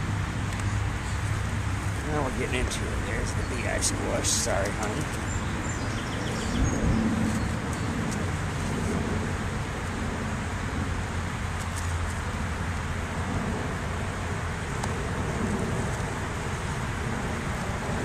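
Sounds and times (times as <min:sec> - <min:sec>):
steady low rumble: 0:00.0 - 0:18.0
bees buzzing: 0:00.8 - 0:08.0.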